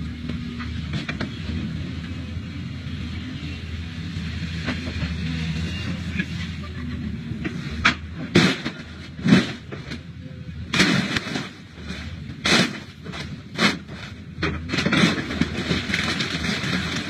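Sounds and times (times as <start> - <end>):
excavator diesel engine running: 0.0 - 17.0
metallic crashes and crunches: 7.4 - 10.0, 10.7 - 17.0.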